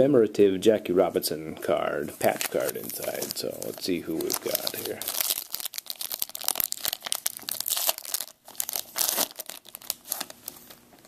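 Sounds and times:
foil wrapper tearing and crinkling: 2.3 - 10.6.

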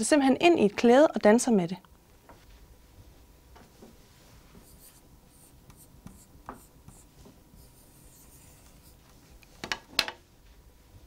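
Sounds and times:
marker scratching on whiteboard: 4.6 - 9.2.

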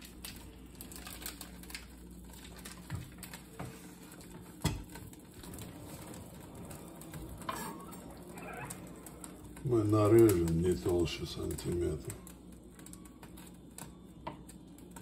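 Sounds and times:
plastic wrapper rustling: 0.0 - 15.0.

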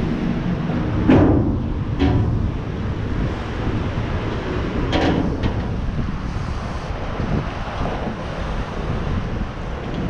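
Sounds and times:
bicycle rolling rumble: 0.0 - 10.0
wind on microphone: 0.0 - 10.0
bike knocks and rattles: 0.7 - 6.2.

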